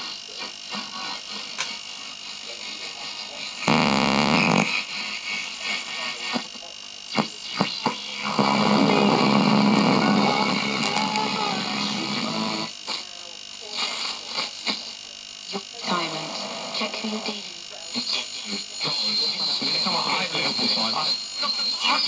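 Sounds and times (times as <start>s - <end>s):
radio hiss and static: 0.0s - 22.0s
radio broadcast station: 3.3s - 4.8s, 6.1s - 22.0s
radio crackles: 3.7s - 4.7s, 7.1s - 13.0s.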